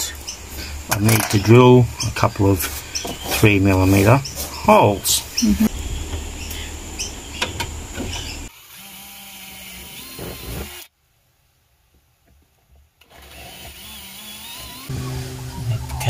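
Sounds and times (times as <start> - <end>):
cordless drill running: 8.5 - 10.9, 13.1 - 15.0.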